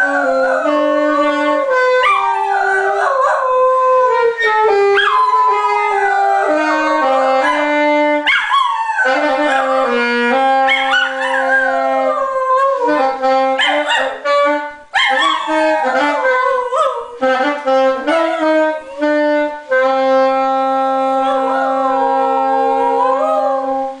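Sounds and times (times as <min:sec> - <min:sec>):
dog howling: 0:00.0 - 0:10.0, 0:10.6 - 0:14.2, 0:15.0 - 0:17.2, 0:21.1 - 0:23.9
wind instrument long notes: 0:00.0 - 0:24.0.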